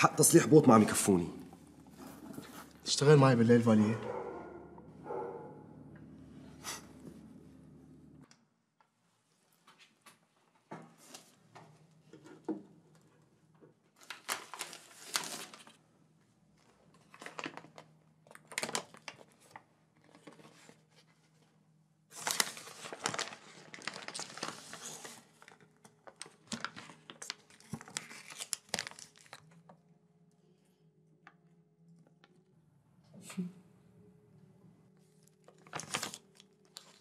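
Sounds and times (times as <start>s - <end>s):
faint low hum: 0.0s - 8.4s
paper wrapper crinkling and tearing: 14.0s - 15.8s, 16.9s - 21.2s, 22.1s - 29.7s, 35.2s - 37.0s.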